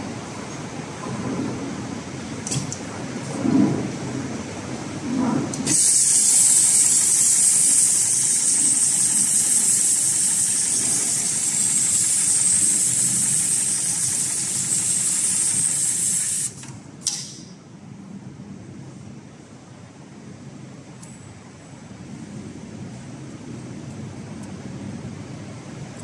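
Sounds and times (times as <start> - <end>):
loud steady hiss: 5.6 - 17.1
sewing machine running: 5.7 - 16.6.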